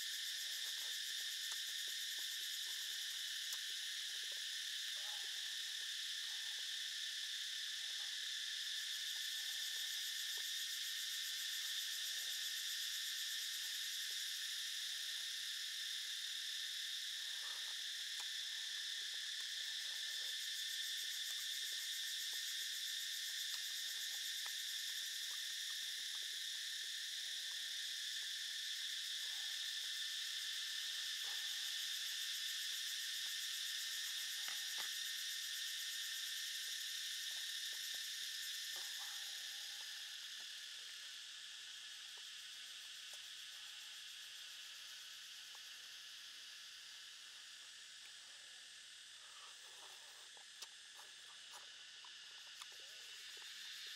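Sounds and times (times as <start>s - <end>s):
insect chorus buzzing: 0.0s - 53.9s
faint chewing: 49.4s - 53.6s.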